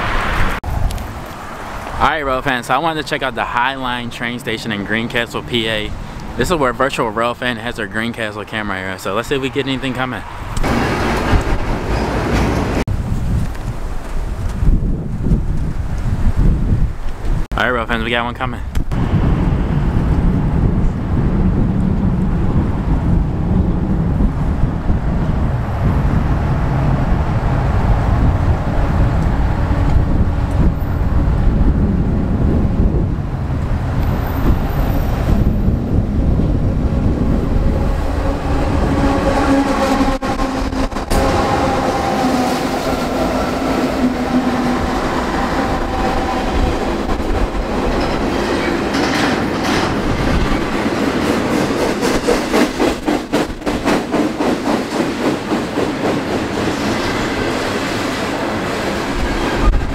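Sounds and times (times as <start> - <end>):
train low rumble: 18.6 - 59.9
locomotive engine tones: 26.5 - 51.2
train wheel clatter: 38.2 - 59.9.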